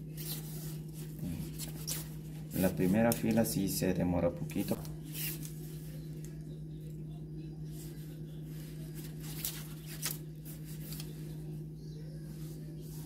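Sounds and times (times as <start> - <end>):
steady low hum: 0.0 - 13.0
twine rustling: 7.6 - 13.0.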